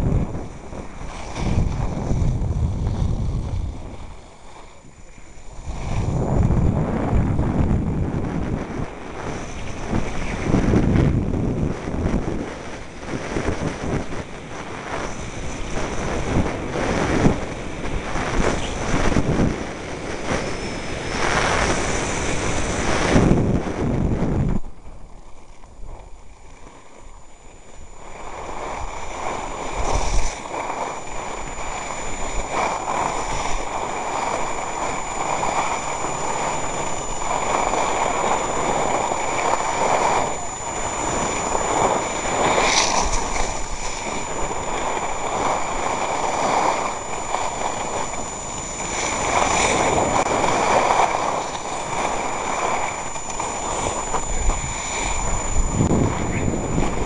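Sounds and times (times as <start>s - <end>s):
skis scraping over snow: 0.0s - 57.0s
wind rushing across microphone: 0.0s - 57.0s.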